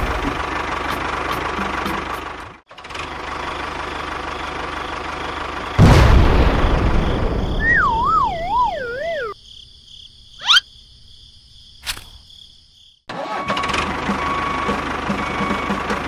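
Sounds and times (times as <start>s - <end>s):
toy tractor engine noise: 0.0s - 5.8s, 13.1s - 16.0s
wavering cartoon whistle: 7.6s - 9.4s, 10.4s - 10.6s
single click: 11.8s - 12.2s.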